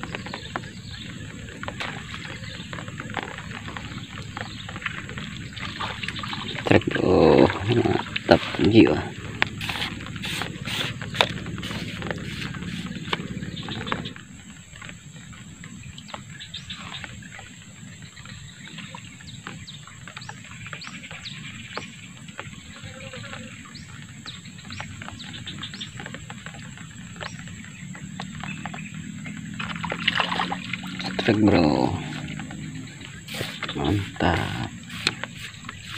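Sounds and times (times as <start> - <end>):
insect-like drone: 0.0 - 35.9
bird whistle calls: 32.9 - 35.9.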